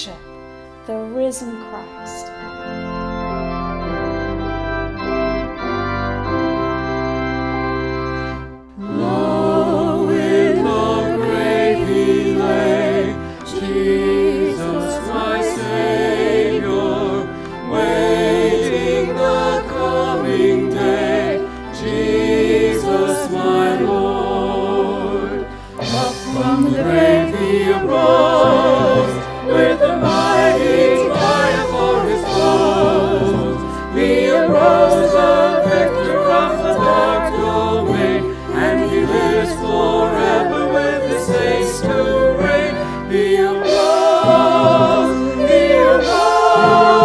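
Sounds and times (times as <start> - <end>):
organ playing held chords: 0.0 - 47.0
voices singing a hymn with vibrato: 8.1 - 47.0.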